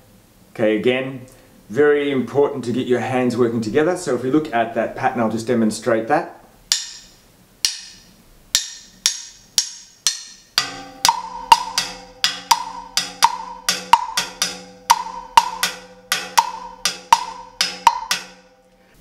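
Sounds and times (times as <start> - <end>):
sticks clicking on wood block: 6.7 - 10.4
steady ringing tone: 10.3 - 19.0.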